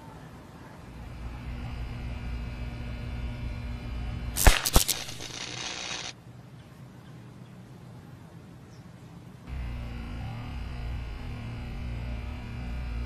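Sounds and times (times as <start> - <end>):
electrical buzz: 0.9 - 6.2, 9.5 - 13.0
hissing buzz of electrical arc: 0.9 - 6.2, 9.5 - 13.0
electrical arc cracks: 1.0 - 6.2.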